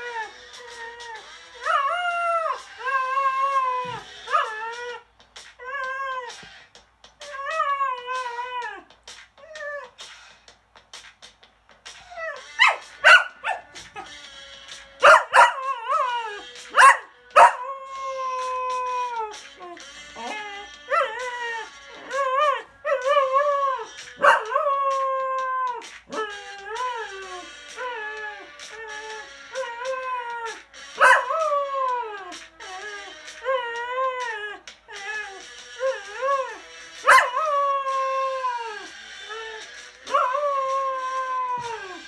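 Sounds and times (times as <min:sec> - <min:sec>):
dog howling: 0:00.0 - 0:05.0, 0:07.2 - 0:10.0, 0:15.0 - 0:42.0
dog yipping: 0:00.0 - 0:05.0, 0:12.0 - 0:14.1, 0:15.0 - 0:38.9.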